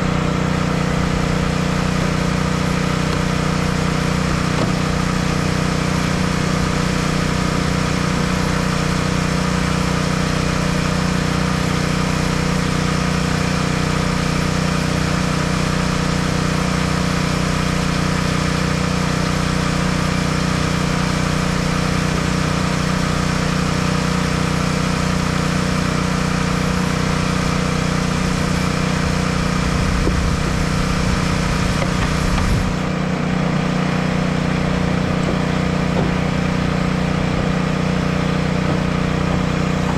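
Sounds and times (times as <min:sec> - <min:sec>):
engine humming steadily: 0:00.0 - 0:39.9.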